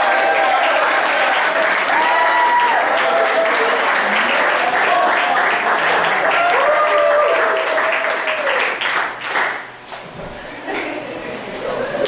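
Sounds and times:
voices cheering: 0.0 - 8.8
audience applauding: 0.0 - 9.8.

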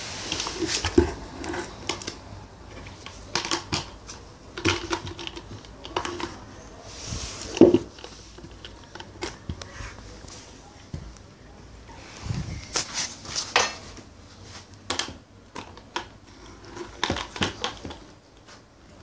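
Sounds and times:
plastic bucket clacking and knocking: 2.9 - 6.5, 7.6 - 9.6, 14.9 - 18.0.

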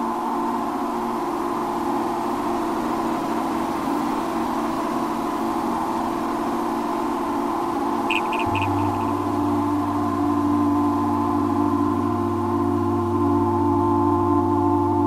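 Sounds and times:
electronic drone music: 8.1 - 15.0.

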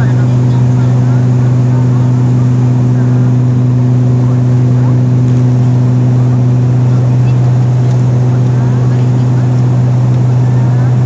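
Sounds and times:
airliner engine drone: 0.0 - 11.0.

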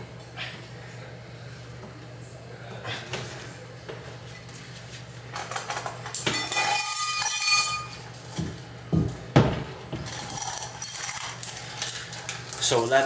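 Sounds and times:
metal weight plate clinking: 6.2 - 8.3.

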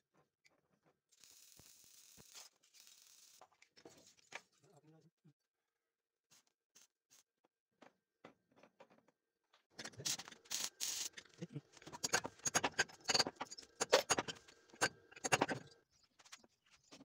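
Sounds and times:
metal rod clicking and scraping: 9.8 - 15.8.

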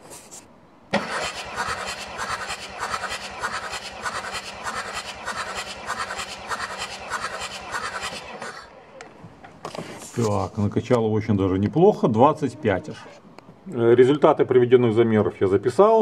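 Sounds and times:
starter motor cranking diesel: 0.9 - 9.0.

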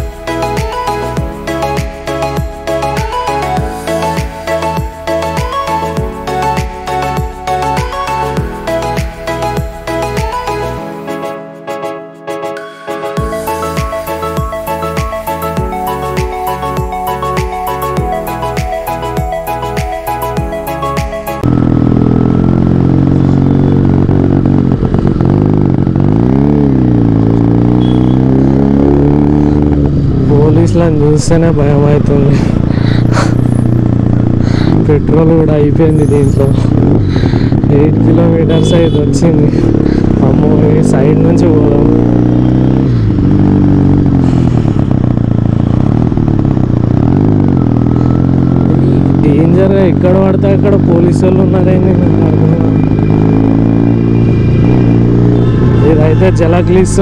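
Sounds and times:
motorcycle engine running: 0.0 - 10.8, 13.2 - 57.0
traffic: 13.4 - 57.0.

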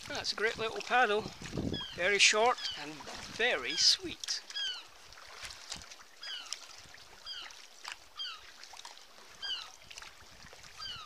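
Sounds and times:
paddle strokes splashing water: 0.0 - 11.0
water dripping: 0.0 - 11.0.

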